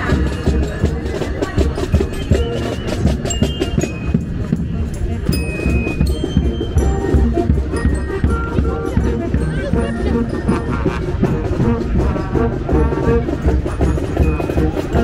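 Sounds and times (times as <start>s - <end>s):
crowd voices: 0.0s - 15.0s
parade music with drumming: 0.0s - 15.0s.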